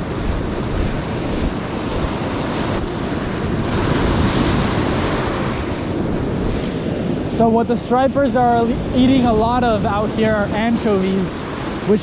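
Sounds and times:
ocean surf breaking: 0:00.0 - 0:12.0
wind buffeting microphone: 0:00.0 - 0:12.0.

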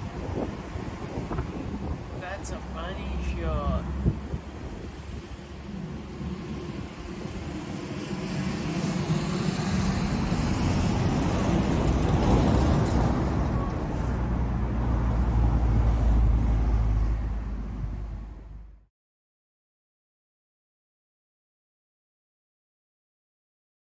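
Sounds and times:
diesel locomotive engine drone: 0:00.0 - 0:18.8.

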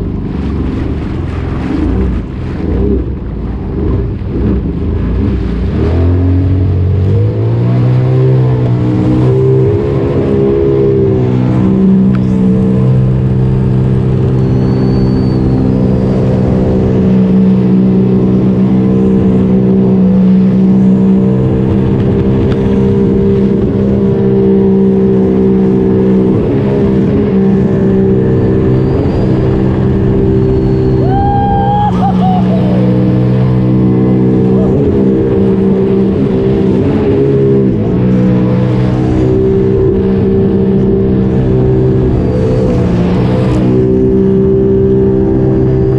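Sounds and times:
watercraft engine drone: 0:00.0 - 0:45.9.

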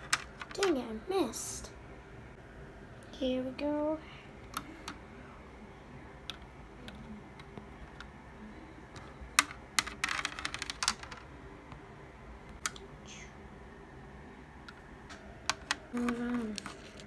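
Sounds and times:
plastic ball bouncing on baseplate: 0:09.0 - 0:11.2, 0:15.4 - 0:16.8
lego pieces clicking: 0:09.4 - 0:11.2.

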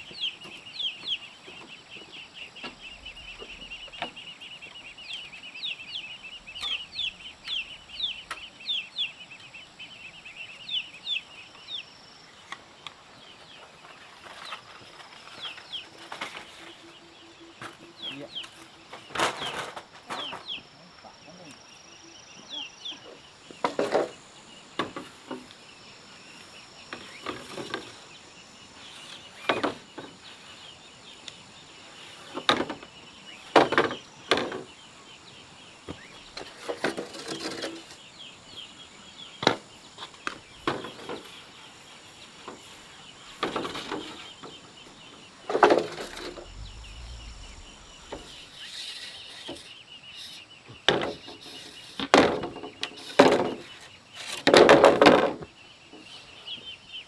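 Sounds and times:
insects chirring: 0:00.0 - 0:52.4.

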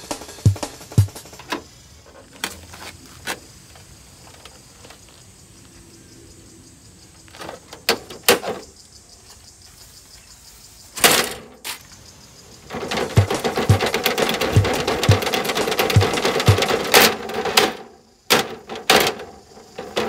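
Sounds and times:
harsh plastic clatter: 0:12.7 - 0:20.0
plastic knocks and clicks: 0:12.7 - 0:20.0.

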